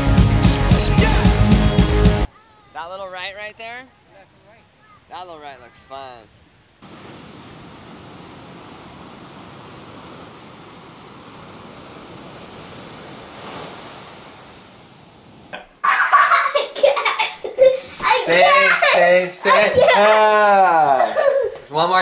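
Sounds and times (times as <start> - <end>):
ocean surf breaking: 5.1 - 15.6.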